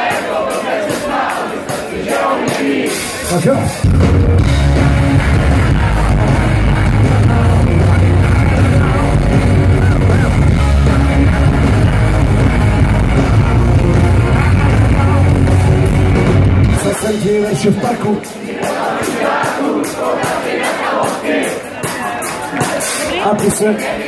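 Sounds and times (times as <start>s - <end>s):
live rock band: 0.0s - 24.0s
man singing: 4.8s - 18.4s, 21.8s - 24.0s.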